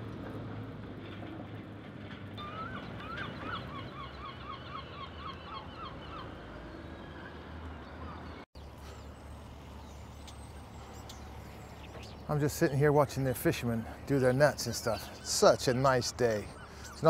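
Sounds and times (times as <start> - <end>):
gull calling: 13.7 - 17.0.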